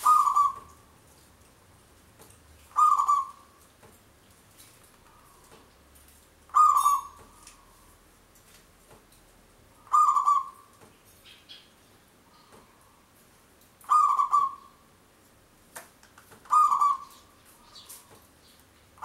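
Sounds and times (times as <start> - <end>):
dove cooing: 0.0 - 0.8, 2.7 - 3.5, 6.5 - 7.7, 9.8 - 10.7, 13.8 - 14.8, 16.5 - 17.8.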